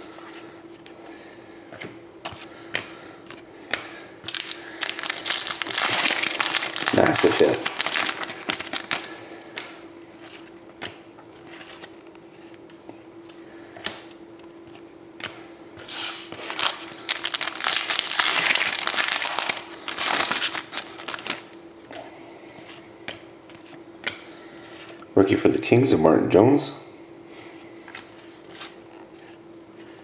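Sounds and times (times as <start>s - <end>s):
faint steady hum: 0.0s - 30.0s
cards rustling and sliding: 1.7s - 12.8s, 14.6s - 21.6s, 27.9s - 30.0s
wrappers crinkling: 4.3s - 9.2s, 15.9s - 21.6s.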